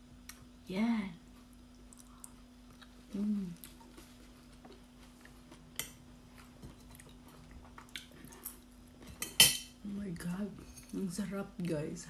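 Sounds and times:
faint steady hum: 0.0 - 12.0
chewing and mouth clicks: 1.7 - 3.0, 3.6 - 9.1
person humming mm: 3.1 - 3.6.

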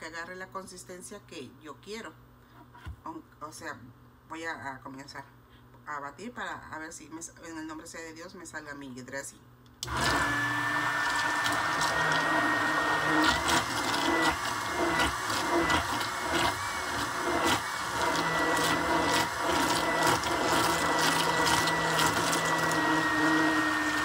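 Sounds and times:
immersion blender whining: 9.8 - 24.0.

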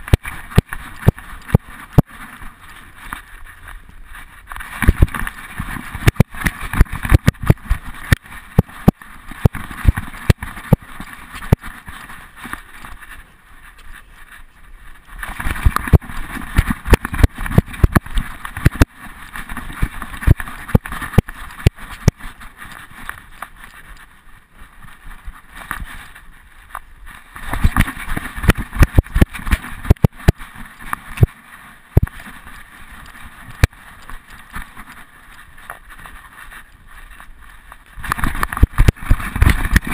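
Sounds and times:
rubbing on microphone: 0.0 - 39.9
wind rumbling on microphone: 0.0 - 39.9
camera rattling and knocking: 4.5 - 12.6, 15.2 - 22.4, 27.4 - 31.3, 38.0 - 39.9.

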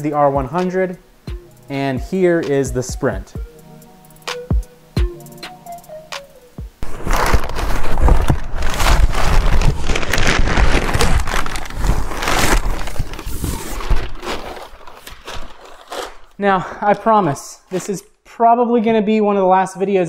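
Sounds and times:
cardboard and plastic crinkling: 6.8 - 18.0.

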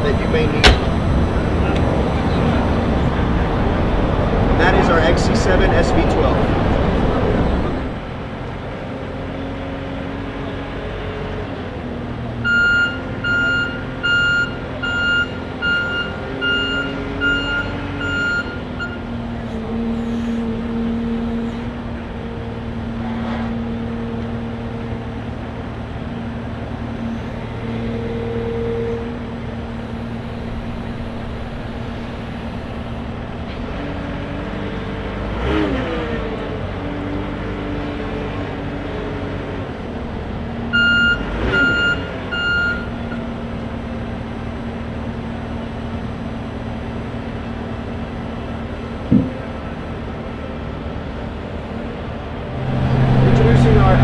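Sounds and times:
loader engine rumble: 0.0 - 54.0
backup alarm beeps: 12.5 - 19.0, 40.8 - 42.9
sustained humming tone: 52.3 - 54.0.

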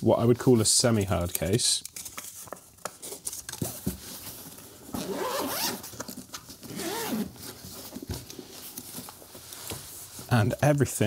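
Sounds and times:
zipper pulled open: 5.0 - 5.8, 6.7 - 7.4.

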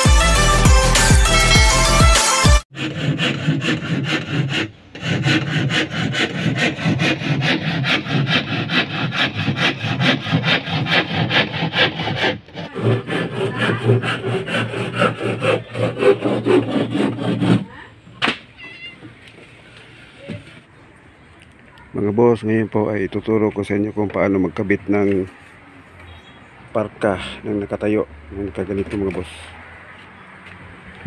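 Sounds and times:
handsaw cutting plywood: 0.0 - 17.8.

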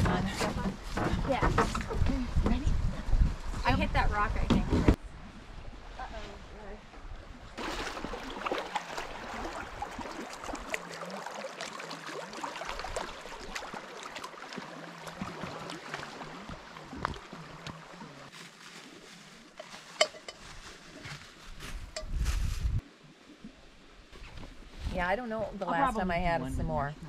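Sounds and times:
small waves lapping on shore: 5.2 - 21.5.

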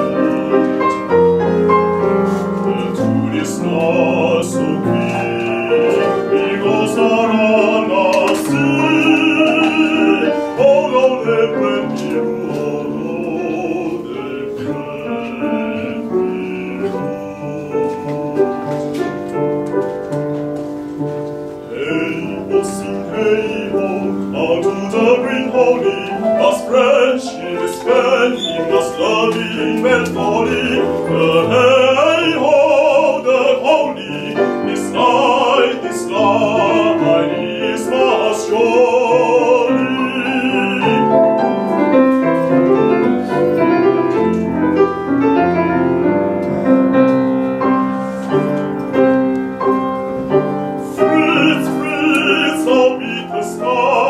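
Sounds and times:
man singing operatically: 0.0 - 2.0, 2.6 - 18.8, 21.6 - 41.6, 50.8 - 54.0
grand piano: 0.0 - 54.0.

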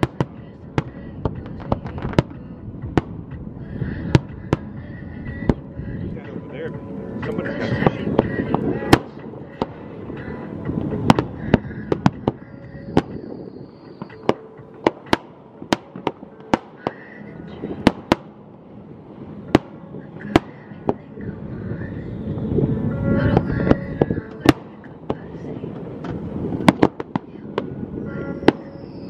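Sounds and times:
fireworks bangs: 10.9 - 18.4, 23.4 - 29.0.

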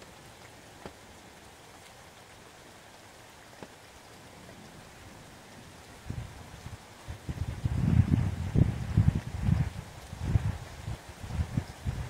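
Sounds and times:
single raindrops striking close: 0.0 - 4.9
faint rain: 0.0 - 12.0.

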